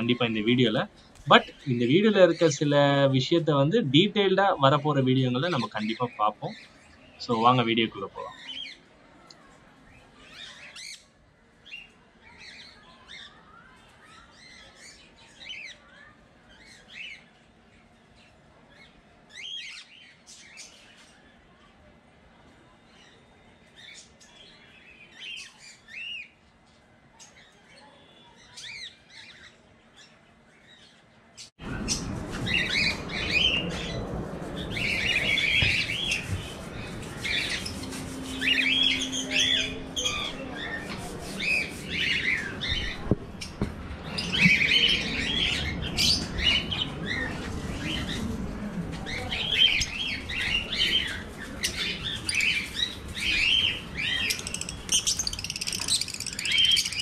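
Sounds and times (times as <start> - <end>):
birds chirping and squawking: 0.0 - 8.9, 28.4 - 48.3, 49.1 - 57.0.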